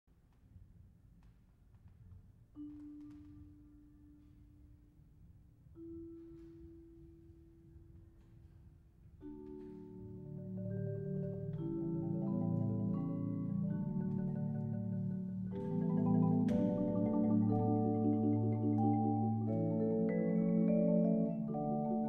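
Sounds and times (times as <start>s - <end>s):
marimba and vibraphone duo: 5.8s - 8.5s, 9.2s - 22.0s.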